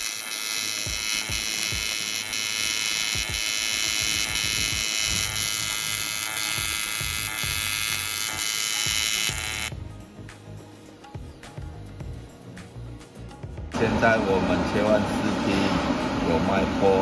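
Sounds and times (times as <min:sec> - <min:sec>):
welding arc buzzing: 0:00.0 - 0:09.8.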